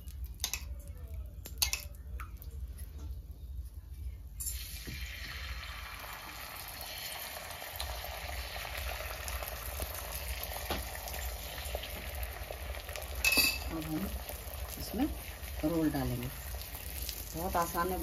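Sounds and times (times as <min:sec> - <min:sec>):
egg sizzling in a hot pan: 0:04.4 - 0:18.0.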